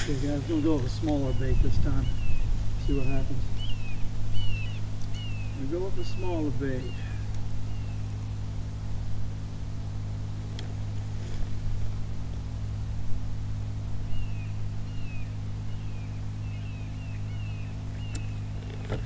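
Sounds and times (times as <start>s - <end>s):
low mechanical hum: 0.0s - 19.0s
bird whistled calls: 0.6s - 8.1s, 14.1s - 18.7s.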